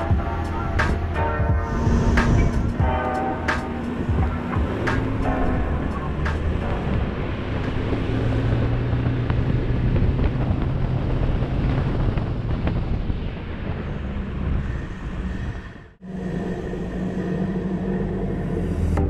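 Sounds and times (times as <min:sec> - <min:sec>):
diesel engine running under load: 0:00.0 - 0:12.6.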